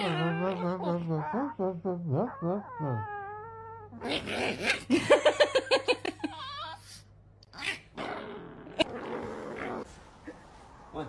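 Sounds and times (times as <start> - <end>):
wavering vocal sounds: 0.0 - 4.1.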